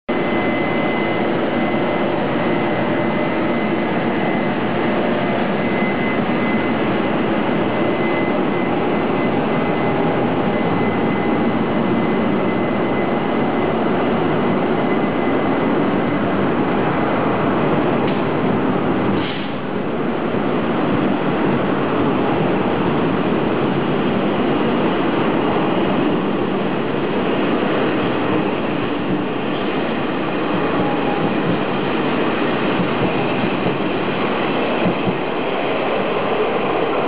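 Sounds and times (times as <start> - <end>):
thin high whine: 0.1 - 17.1
locomotive machinery noise: 0.1 - 37.0
train coaches rolling past: 0.1 - 37.0.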